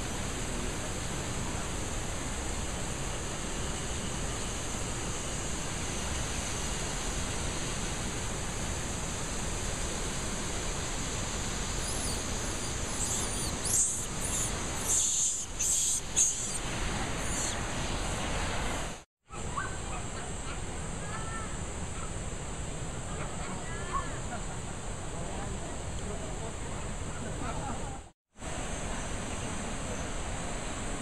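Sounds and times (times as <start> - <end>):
river rushing: 10.1 - 19.0
high-pitched squeals and chirps: 11.8 - 18.3.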